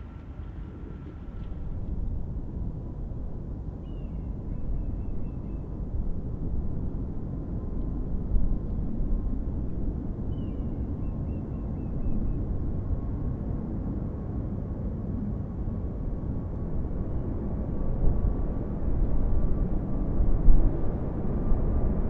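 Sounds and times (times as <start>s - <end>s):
distant jet engines rumbling: 0.0s - 22.0s
small bird singing: 3.8s - 5.7s, 10.3s - 12.4s.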